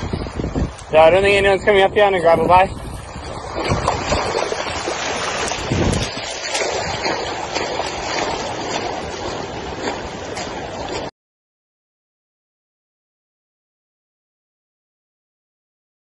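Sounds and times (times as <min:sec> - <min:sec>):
floodwater rushing: 0:00.0 - 0:11.1
wind buffeting microphone: 0:00.0 - 0:11.1.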